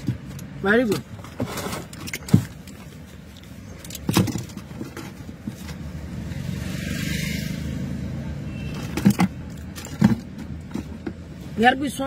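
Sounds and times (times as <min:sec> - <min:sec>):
handling knocks and rustles: 0:00.0 - 0:06.1, 0:08.7 - 0:11.4.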